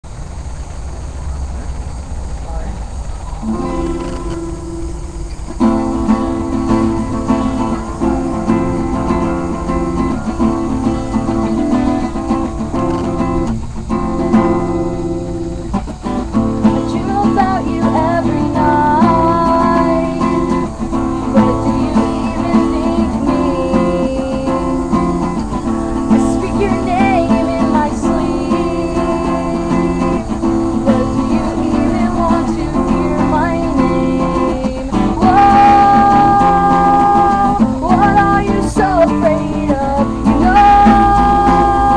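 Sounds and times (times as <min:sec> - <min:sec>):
acoustic guitar strumming: 0:00.0 - 0:41.9
woman singing: 0:16.3 - 0:41.9.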